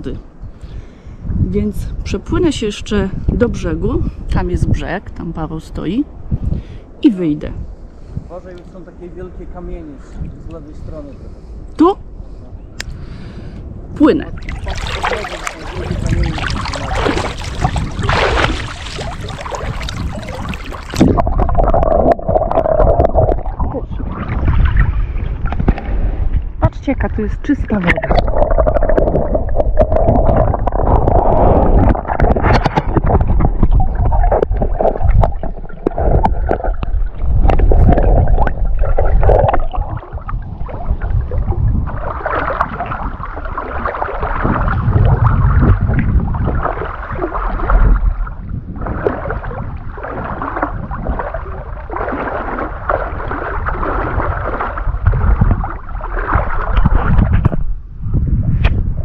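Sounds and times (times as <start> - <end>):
low rumble on microphone: 0.0 - 6.8, 7.4 - 59.0
water splashing and gurgling: 14.0 - 59.0.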